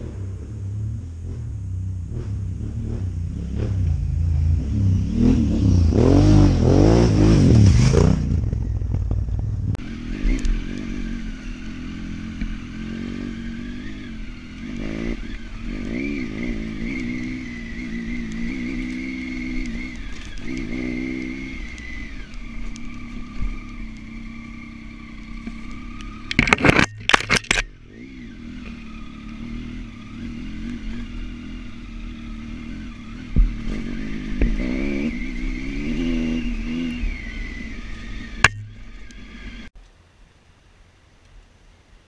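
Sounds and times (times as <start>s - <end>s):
motorcycle engine revving: 0.0s - 39.8s
high whine: 0.0s - 41.3s
clattering and scraping: 26.3s - 27.7s.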